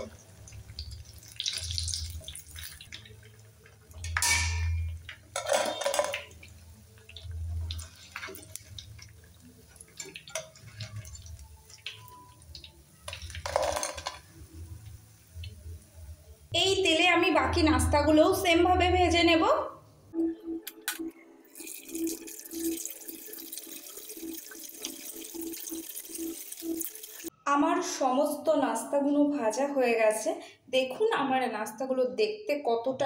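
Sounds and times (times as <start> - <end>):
hot oil sizzling: 0.0 - 16.5, 21.6 - 27.3
oil splashing: 0.3 - 3.9
metal skimmer clinking and scraping: 4.0 - 6.3.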